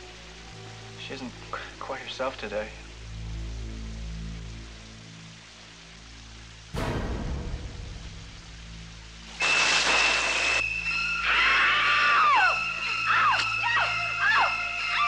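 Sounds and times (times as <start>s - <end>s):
low hum: 6.7s - 9.4s
burst of hiss: 6.7s - 13.1s
downward-sliding shrieks: 9.4s - 15.0s.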